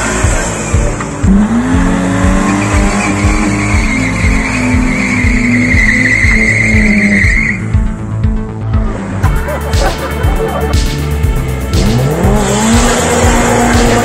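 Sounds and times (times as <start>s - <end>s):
car engine revving: 0.0s - 14.0s
tyre squeal: 2.5s - 7.6s.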